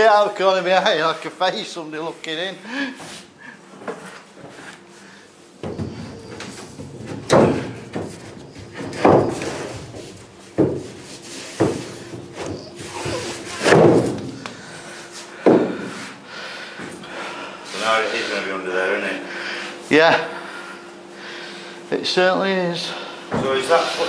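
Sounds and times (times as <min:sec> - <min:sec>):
heavy thuds on wooden floor: 0:05.6 - 0:14.5, 0:15.4 - 0:16.0.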